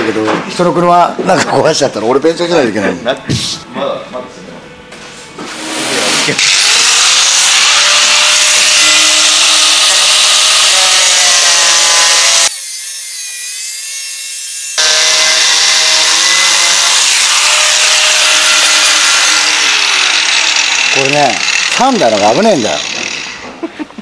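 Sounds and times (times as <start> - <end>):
angle grinder cutting metal: 5.5 - 23.6.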